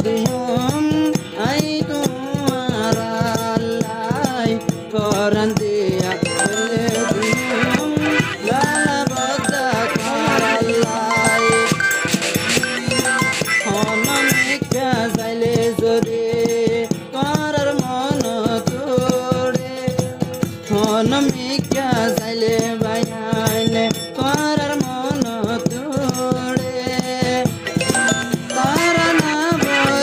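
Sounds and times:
rattling percussion beat: 0:00.0 - 0:30.0
ornamented wavering melody: 0:06.2 - 0:14.6, 0:27.7 - 0:30.0
steady held notes: 0:06.2 - 0:14.6.

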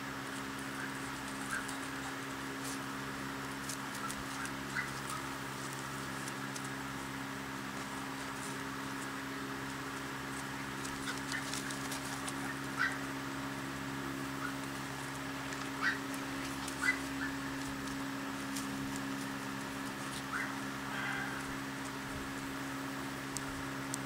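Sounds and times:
steady low hum: 0:00.0 - 0:24.0
puppies squeaking and yipping: 0:00.6 - 0:02.2, 0:03.9 - 0:05.4, 0:10.6 - 0:13.1, 0:14.3 - 0:14.7, 0:15.6 - 0:17.7, 0:20.1 - 0:20.6.

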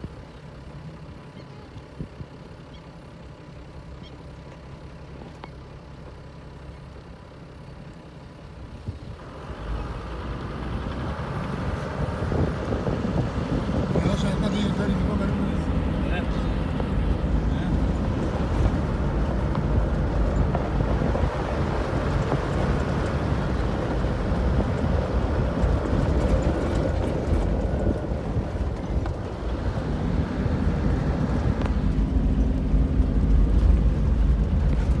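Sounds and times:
vehicle engine and road rumble: 0:00.0 - 0:35.0
wind buffeting microphone: 0:10.5 - 0:15.9, 0:16.6 - 0:35.0.

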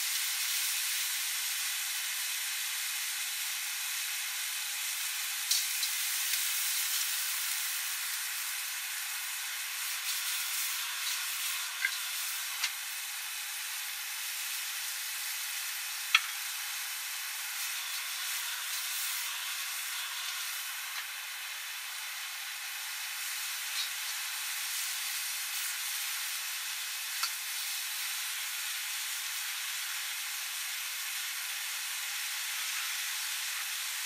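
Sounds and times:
food sizzling in a wok: 0:00.0 - 0:34.0.

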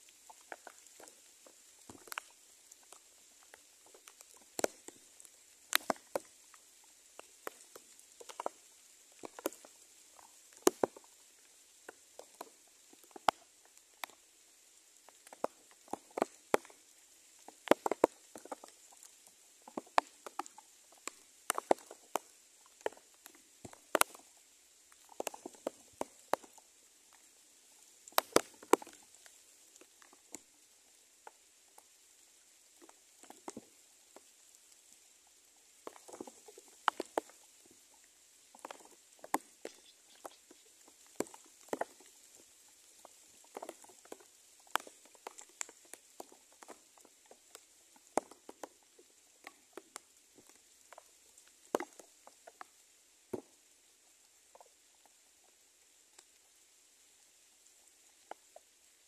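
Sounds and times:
sharp taps and patters: 0:28.1 - 0:28.8.

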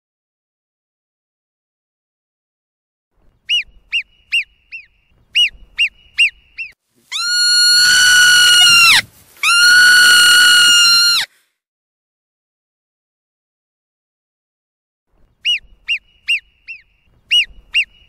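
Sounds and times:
marmot alarm chirps: 0:03.4 - 0:09.6, 0:15.4 - 0:18.0
marmot long whistled calls: 0:03.5 - 0:11.3, 0:15.4 - 0:18.0.

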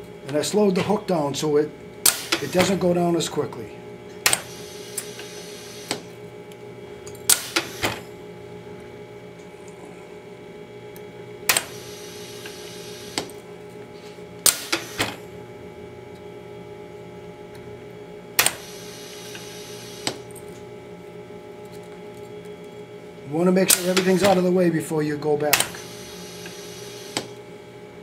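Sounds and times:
winding machine hum: 0:00.0 - 0:28.0
sharp mechanical clacks: 0:23.7 - 0:24.4.

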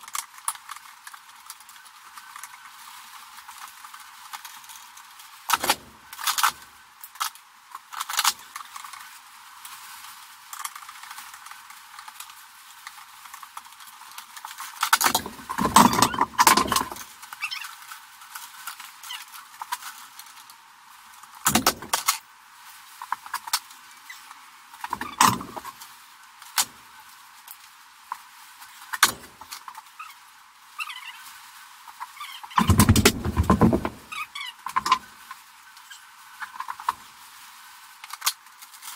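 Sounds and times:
metallic clicks and knocks: 0:05.5 - 0:06.5, 0:15.0 - 0:17.0, 0:21.5 - 0:22.2, 0:24.9 - 0:25.7, 0:32.6 - 0:34.1, 0:34.7 - 0:35.1
metal clatter: 0:15.0 - 0:17.0, 0:32.6 - 0:34.1, 0:34.7 - 0:35.1.

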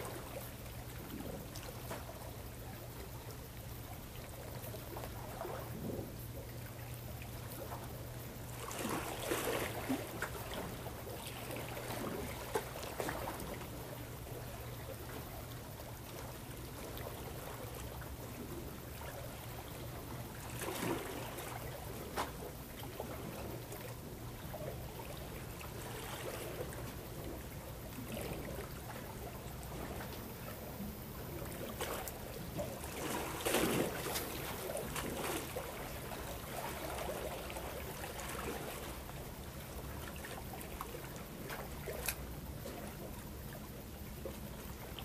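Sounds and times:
steady low hum: 0:00.0 - 0:45.0
water lapping against rocks: 0:08.5 - 0:14.0, 0:19.9 - 0:43.3.

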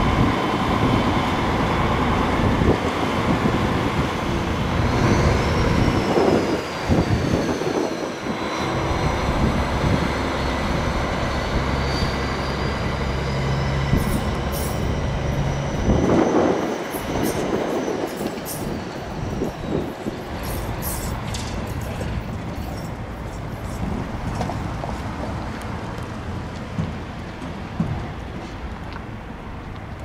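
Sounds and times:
tram wheel squeal: 0:00.0 - 0:25.4
low electric drone: 0:08.0 - 0:15.2.

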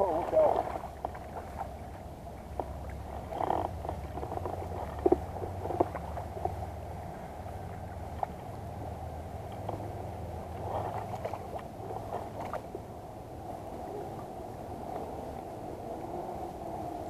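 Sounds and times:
water sloshing and splashing: 0:00.0 - 0:17.0.

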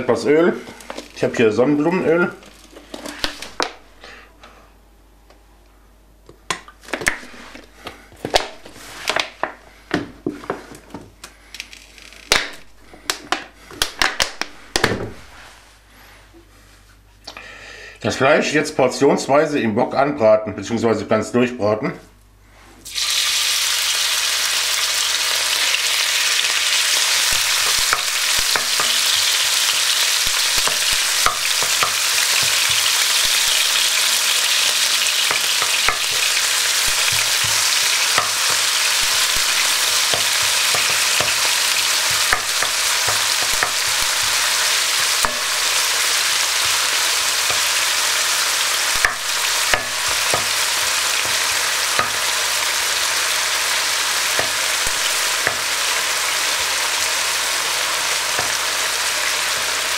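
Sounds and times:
meat sizzling in oil: 0:22.8 - 0:59.9.

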